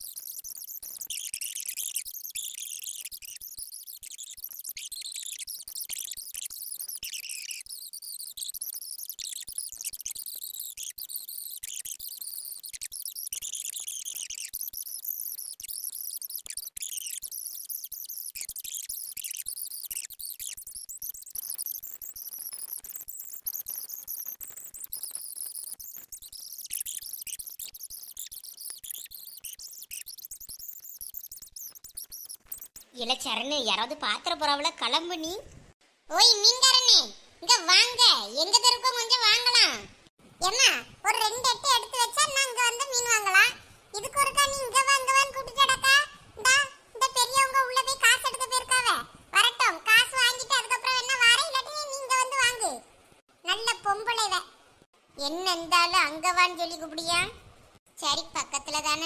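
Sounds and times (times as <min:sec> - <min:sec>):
high-pitched chirping and trilling: 0:00.0 - 0:33.9, 0:40.4 - 0:52.8.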